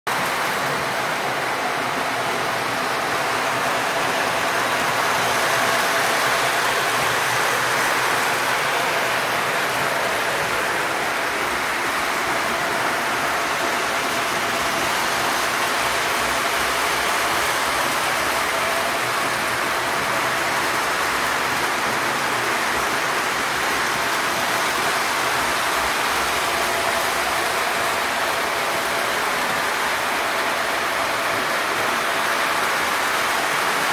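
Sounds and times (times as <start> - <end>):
model train rolling on track: 0.1 - 33.9.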